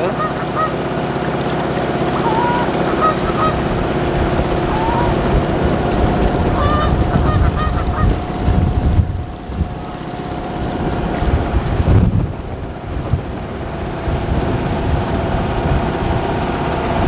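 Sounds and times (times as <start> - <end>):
geese honking: 0.0 - 0.8, 2.1 - 3.7, 4.7 - 5.2, 6.4 - 8.2
boat motor humming: 0.0 - 17.0
wind rumbling on microphone: 3.2 - 17.0.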